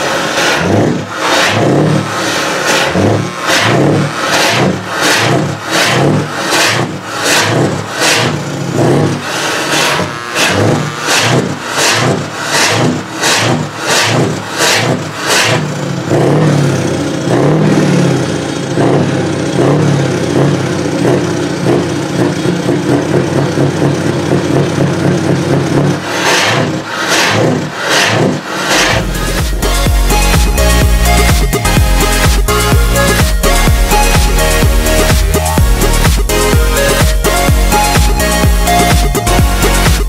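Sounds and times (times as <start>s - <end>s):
truck engine revving: 0.0s - 40.0s
regular sharp beat: 26.1s - 40.0s.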